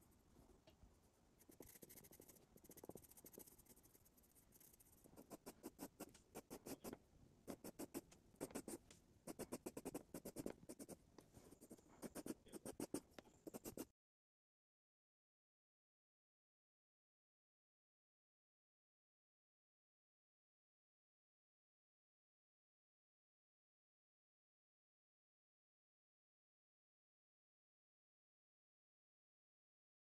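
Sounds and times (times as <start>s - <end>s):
pencil scratching on paper: 1.4s - 13.9s.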